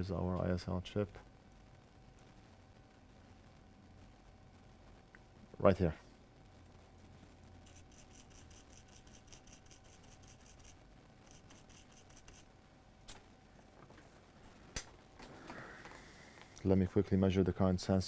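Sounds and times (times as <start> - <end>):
brush scrubbing circuit board: 7.6 - 12.5.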